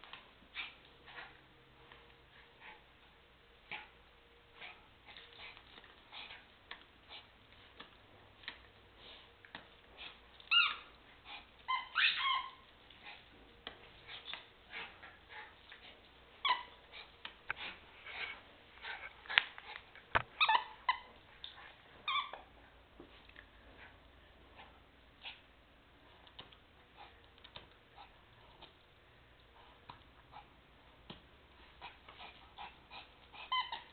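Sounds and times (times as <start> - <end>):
toy squeaks: 10.5 - 10.9, 11.7 - 12.6, 20.4 - 21.1, 33.3 - 33.9.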